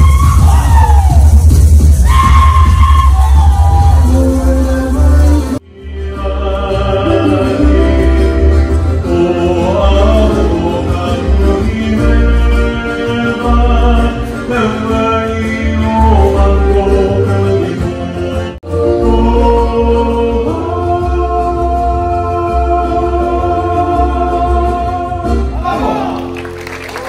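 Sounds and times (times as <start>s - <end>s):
backing music with heavy bass: 0.0s - 25.7s
man singing through a microphone: 4.5s - 25.9s.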